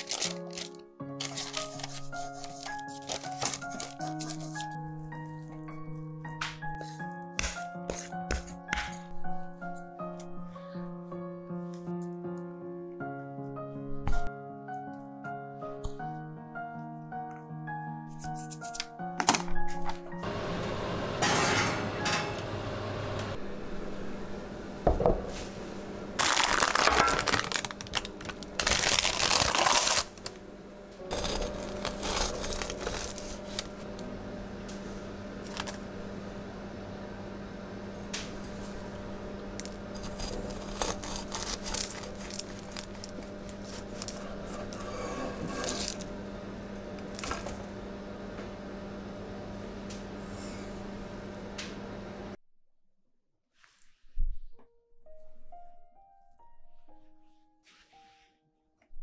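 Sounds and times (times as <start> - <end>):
baking paper crinkling: 0.0 - 4.9, 26.2 - 30.4, 31.1 - 34.0, 39.6 - 46.1
steady low hum: 21.8 - 52.4.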